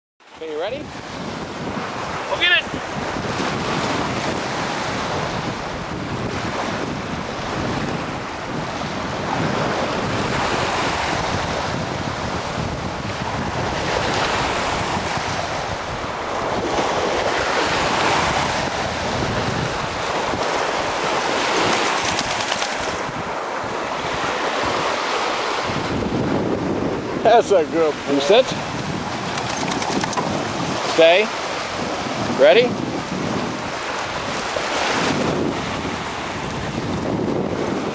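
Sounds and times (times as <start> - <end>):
waves washing onto shore: 0.2 - 37.9
wind buffeting microphone: 0.6 - 37.9.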